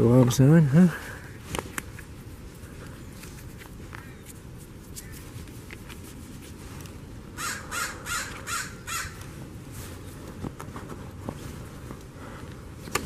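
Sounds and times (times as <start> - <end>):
crow cawing: 4.0 - 4.2, 7.4 - 9.2.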